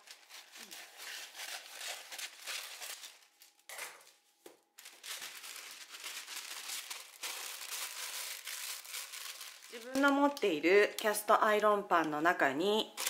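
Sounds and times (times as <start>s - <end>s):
paper crinkling and rustling: 0.0s - 10.6s
scissors cutting paper: 0.1s - 3.0s.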